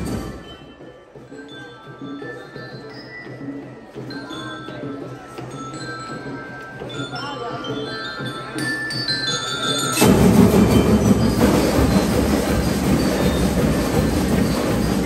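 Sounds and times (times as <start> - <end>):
snare and bass drums: 0.0 - 0.6, 10.0 - 15.0
bell-like melody notes: 0.0 - 15.0.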